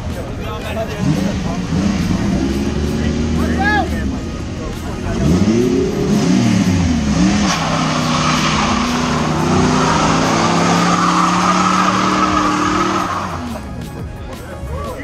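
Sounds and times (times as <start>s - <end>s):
car engine revving: 0.0s - 14.2s
tyres squealing: 5.2s - 13.7s.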